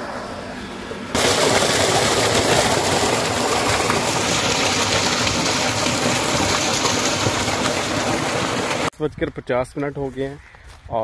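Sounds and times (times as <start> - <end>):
water gushing from pipe: 1.1 - 8.9.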